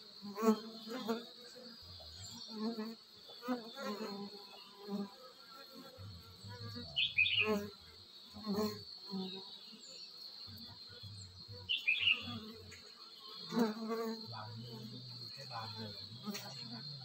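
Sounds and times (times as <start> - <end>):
bees buzzing: 0.0 - 17.0
bird chirping: 6.4 - 7.8, 8.4 - 17.0.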